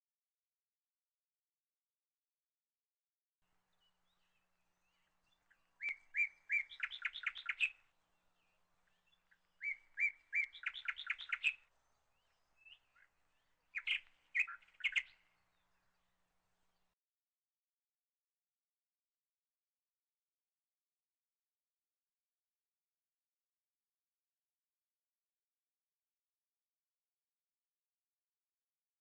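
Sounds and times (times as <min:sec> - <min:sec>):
bird singing: 0:03.5 - 0:17.0.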